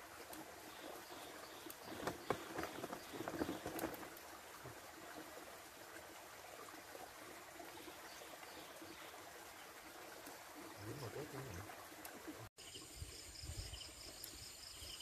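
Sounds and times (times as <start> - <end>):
shallow stream hissing: 0.0 - 15.0
small splashes and knocks: 1.6 - 4.8.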